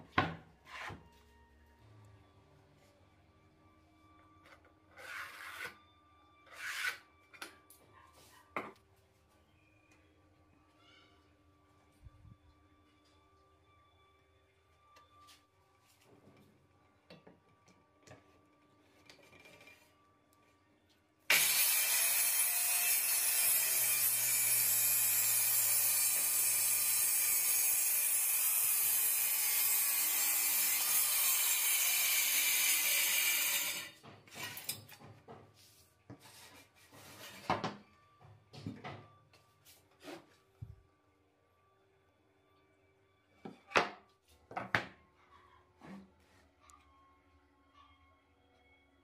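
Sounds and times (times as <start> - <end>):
circular saw cutting plywood: 21.3 - 34.0.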